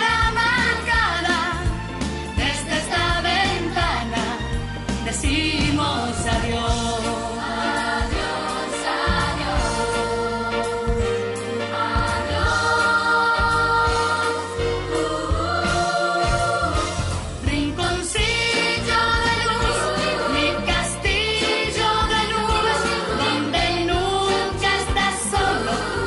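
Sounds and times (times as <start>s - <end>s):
pop backing music with bass: 0.0s - 26.0s
voices singing: 5.2s - 11.0s, 11.6s - 26.0s.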